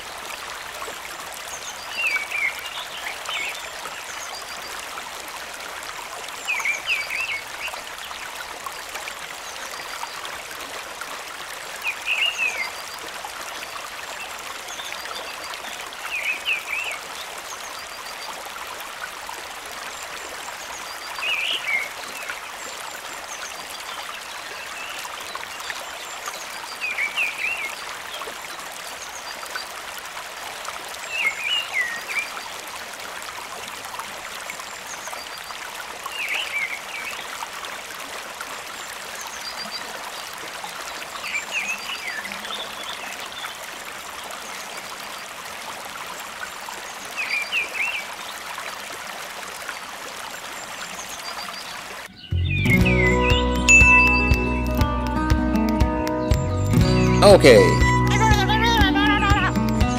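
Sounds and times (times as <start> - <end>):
short high chirps: 52.4 - 55.1.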